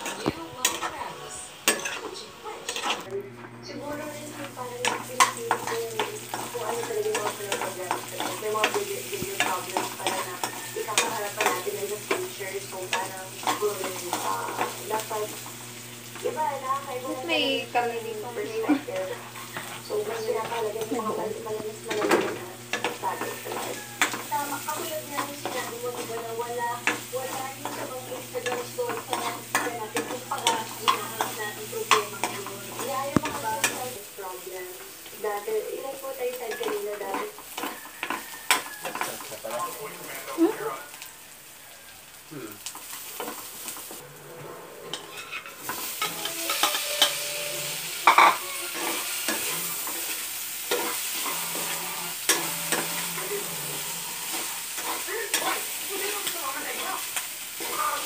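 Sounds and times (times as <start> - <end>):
metal spoon scraping a pan: 0.0 - 3.1, 4.5 - 15.5, 18.3 - 40.3, 42.7 - 58.0
onions sizzling in oil: 0.0 - 58.0
metal ladle scraping a wok: 1.7 - 3.1, 44.0 - 55.8.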